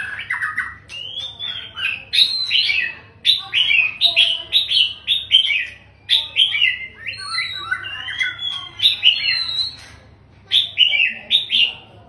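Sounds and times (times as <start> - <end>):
bird singing whistled notes: 0.0 - 4.0, 4.6 - 9.9.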